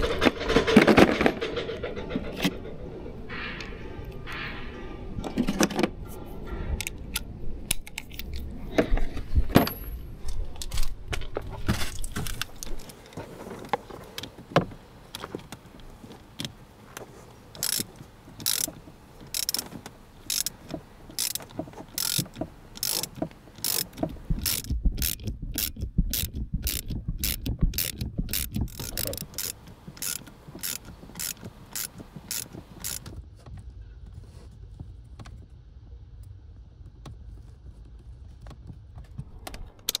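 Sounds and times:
knocks and handling thumps: 0:07.8 - 0:35.4
sharp ratcheting clicks: 0:17.6 - 0:33.1.

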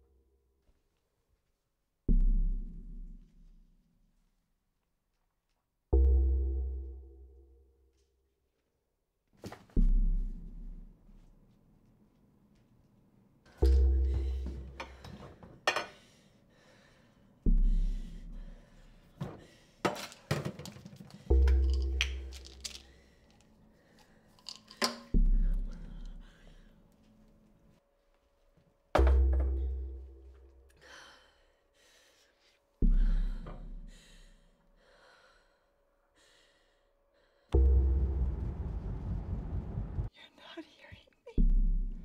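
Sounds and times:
deep boom with low hum: 0:02.1 - 0:03.3, 0:37.6 - 0:40.1, 0:41.4 - 0:42.0.

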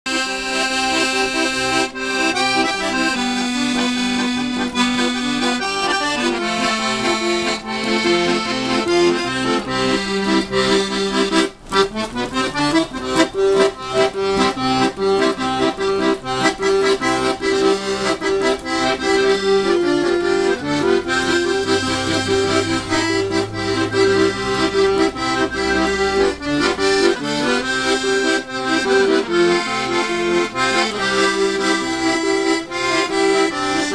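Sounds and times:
accordion playing: 0:00.1 - 0:33.9.

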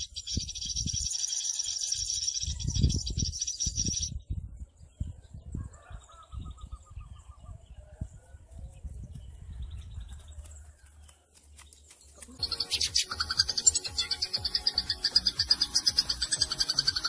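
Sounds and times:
bird trill: 0:00.0 - 0:04.2, 0:12.4 - 0:17.0
faint bird chirps: 0:00.0 - 0:10.3, 0:11.9 - 0:17.0
low wind rumble on microphone: 0:00.0 - 0:11.1.

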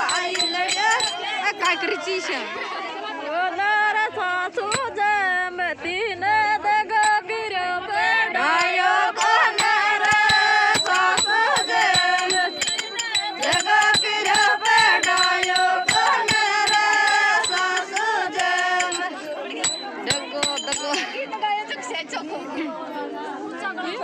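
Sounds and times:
person singing wavering melody: 0:00.0 - 0:01.7, 0:08.5 - 0:21.0
quick percussion beat: 0:00.0 - 0:01.8, 0:07.0 - 0:07.2, 0:08.5 - 0:21.1.

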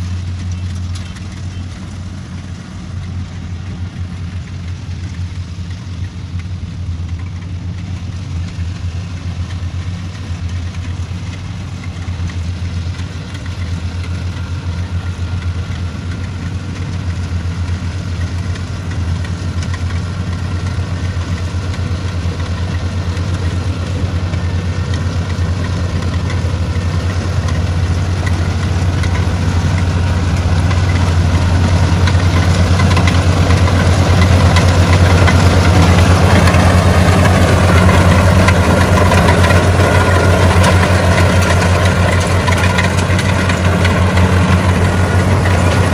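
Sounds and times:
combine harvester running: 0:00.0 - 0:45.9.

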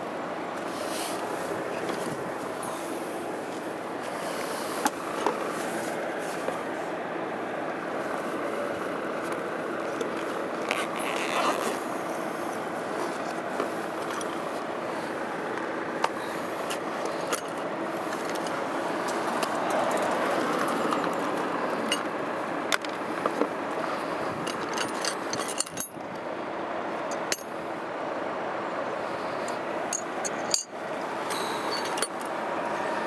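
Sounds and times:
metal tools clinking in bag: 0:24.4 - 0:26.0, 0:31.3 - 0:32.3.

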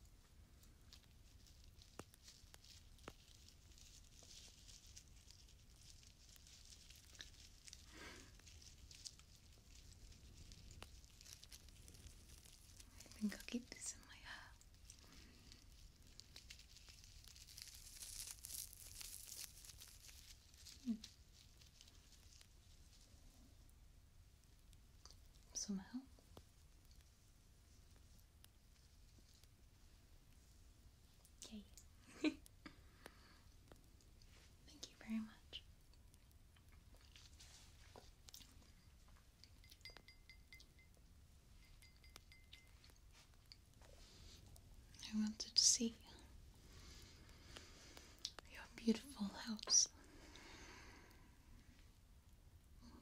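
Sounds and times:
faint crackling and crinkling: 0:00.0 - 0:53.0
thin high ringing: 0:38.6 - 0:43.6.

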